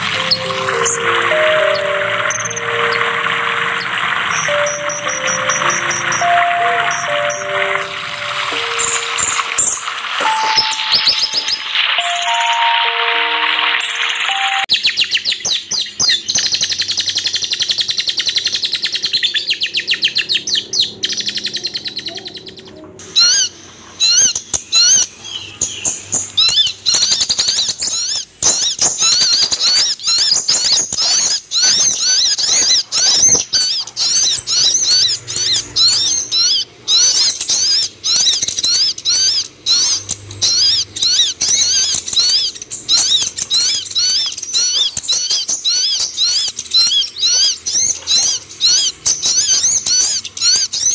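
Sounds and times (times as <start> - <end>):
bird buzzy trill: 0.0 - 14.7
sharp high bird chirps: 0.0 - 50.9.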